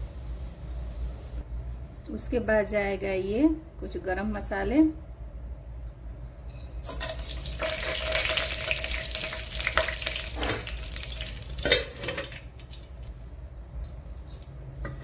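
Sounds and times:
spices sizzling in hot oil: 0:00.0 - 0:01.4, 0:06.8 - 0:13.1.

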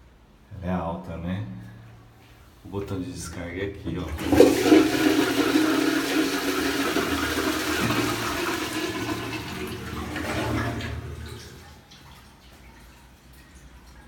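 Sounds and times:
toilet flushing: 0:03.2 - 0:14.0.

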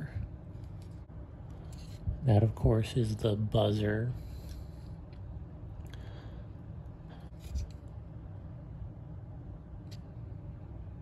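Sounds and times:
low room rumble: 0:00.0 - 0:11.0
soft handling clicks and rubs: 0:00.5 - 0:02.2, 0:07.1 - 0:08.0.

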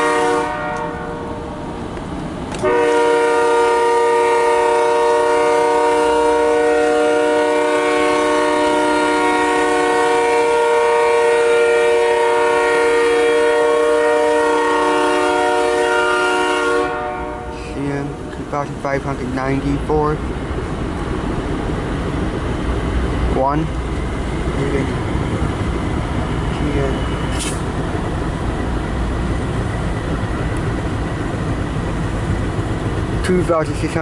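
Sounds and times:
locomotive air horn blast: 0:00.0 - 0:01.6, 0:02.6 - 0:18.2
train rumble: 0:00.0 - 0:34.0.

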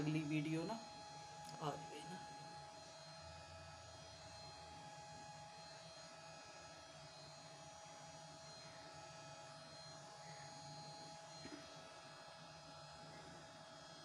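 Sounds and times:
faint electrical hum: 0:00.0 - 0:02.9.

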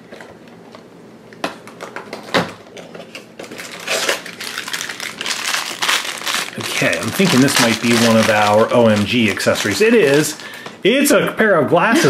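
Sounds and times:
plastic wrapper crinkling: 0:03.0 - 0:10.8.

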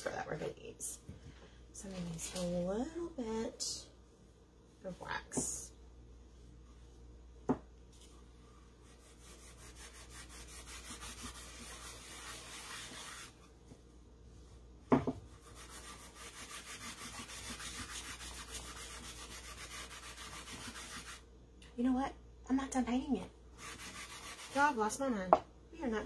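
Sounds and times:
cloth rubbing wood: 0:08.0 - 0:13.5.

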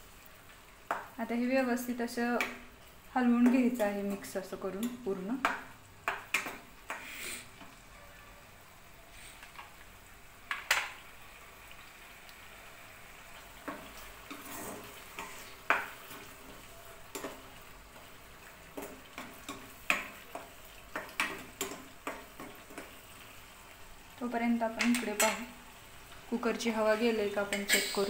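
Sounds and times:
paste sizzling in oil: 0:02.3 - 0:07.9, 0:10.9 - 0:28.0
steel spoon scraping a pan: 0:13.8 - 0:17.5, 0:26.9 - 0:28.0.

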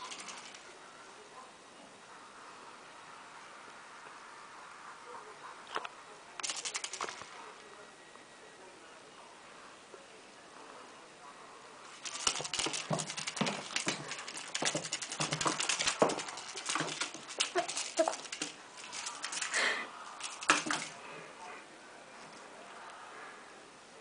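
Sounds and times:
kitten paws and toy clattering on tiles: 0:00.0 - 0:00.6, 0:06.4 - 0:07.4, 0:12.0 - 0:21.0.

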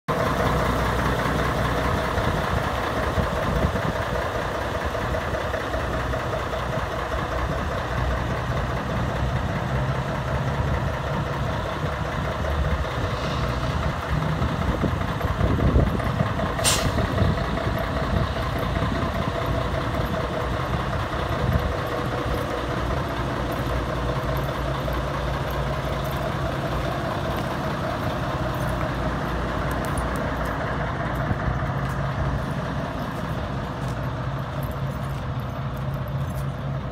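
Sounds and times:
diesel engine idling: 0:00.1 - 0:36.9
sharp hiss: 0:16.6 - 0:17.1.

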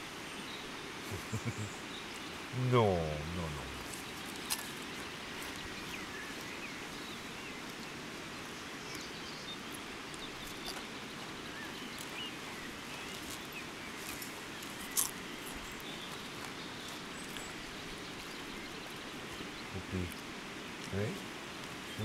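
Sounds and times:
river hiss: 0:00.0 - 0:22.0
faint bird chirps: 0:00.3 - 0:14.2.

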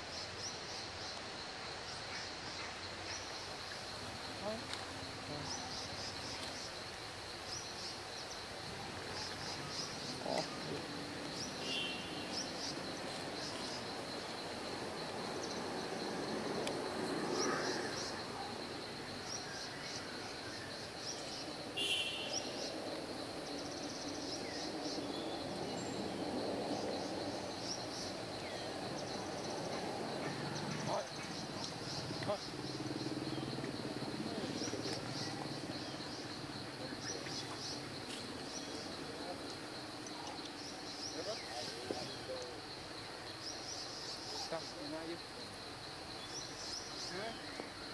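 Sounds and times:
high insect drone: 0:00.0 - 0:47.9
bird chirps: 0:20.6 - 0:22.8.

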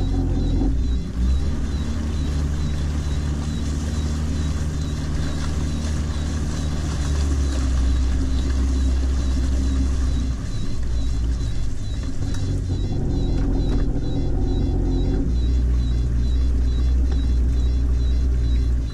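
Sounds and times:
boat motor running: 0:00.0 - 0:18.9.

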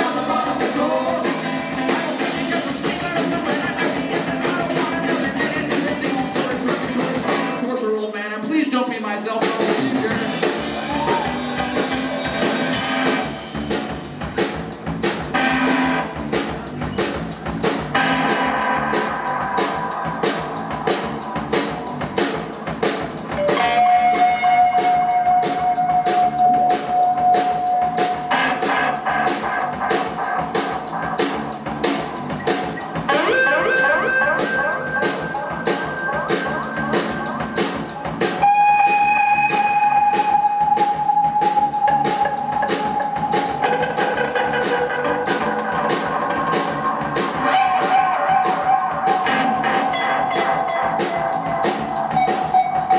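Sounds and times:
drum kit beat: 0:00.0 - 0:07.7, 0:09.2 - 0:52.9
electric guitar: 0:00.0 - 0:07.7, 0:09.5 - 0:52.9
rock band playing: 0:00.0 - 0:52.9
long held high notes: 0:32.0 - 0:52.9.

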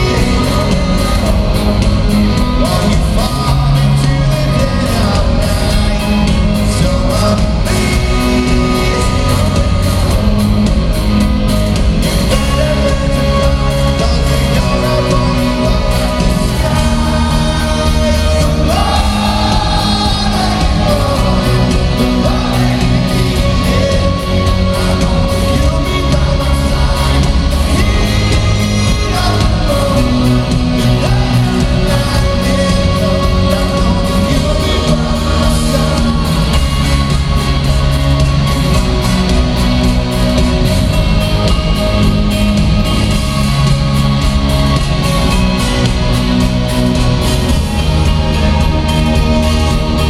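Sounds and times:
live rock band with singing: 0:00.0 - 0:50.0.

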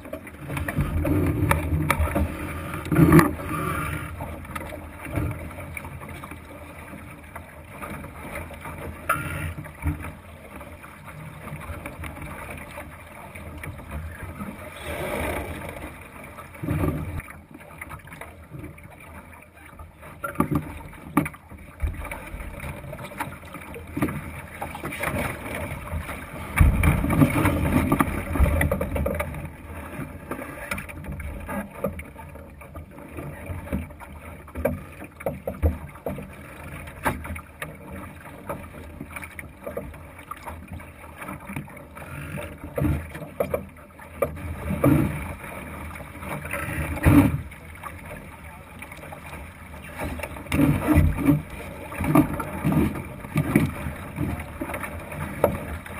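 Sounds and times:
water rushing along boat hull: 0:00.0 - 0:55.9
knocks and thumps on hull: 0:23.9 - 0:32.1, 0:50.0 - 0:55.9.

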